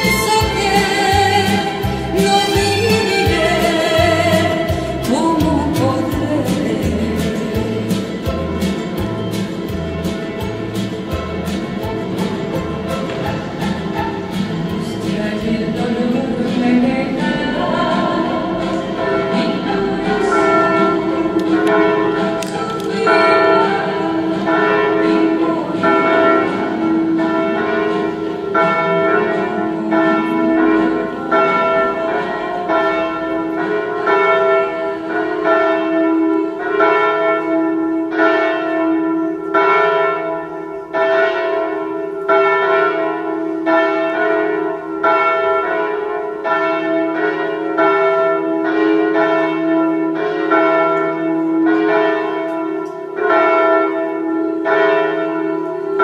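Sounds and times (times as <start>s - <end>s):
church bells ringing: 0.0s - 56.0s
lingering hum: 0.5s - 27.3s.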